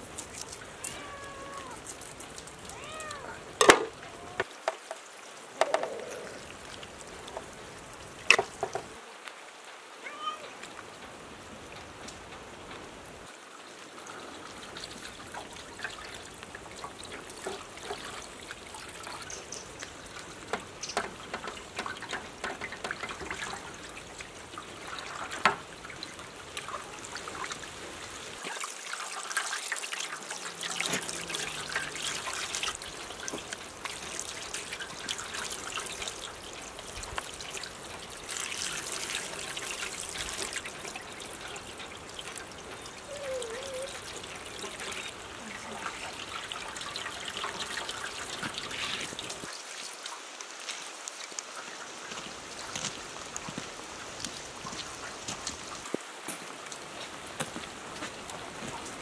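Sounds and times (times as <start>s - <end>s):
small wet clicks: 0.0s - 7.6s, 14.9s - 23.6s
water trickling and splashing: 0.0s - 59.0s.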